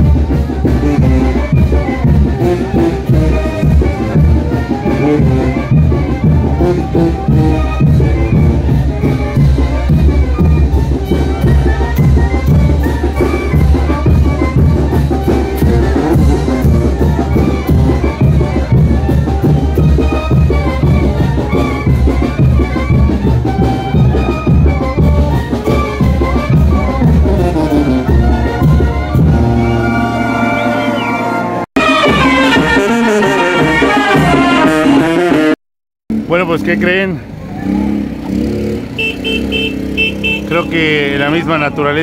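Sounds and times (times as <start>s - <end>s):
brass band playing: 0.0s - 35.6s, 37.7s - 41.7s
different music: 0.0s - 35.6s.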